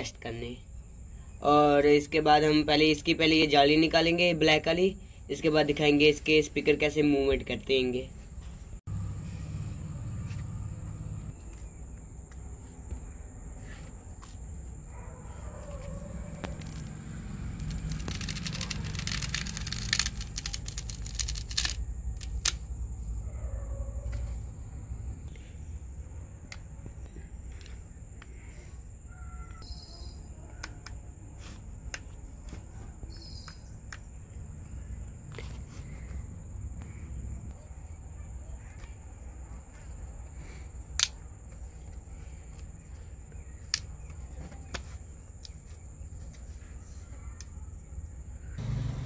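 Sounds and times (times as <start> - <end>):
grille crackling and tearing: 15.7 - 22.6
bird chirps: 29.1 - 30.3, 33.0 - 35.0.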